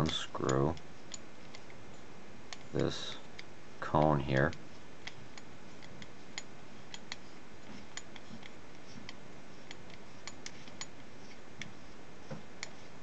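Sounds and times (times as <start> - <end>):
steady hiss: 1.9 - 13.0.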